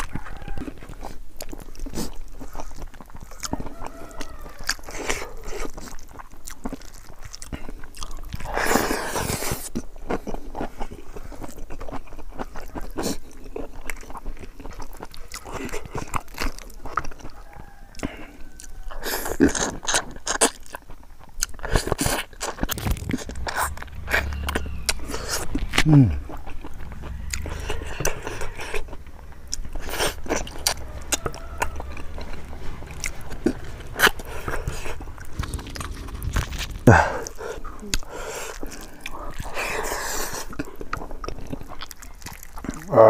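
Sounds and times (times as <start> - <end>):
close chewing and crunching: 0.0 - 43.0
mouth smacks and clicks: 21.4 - 42.9.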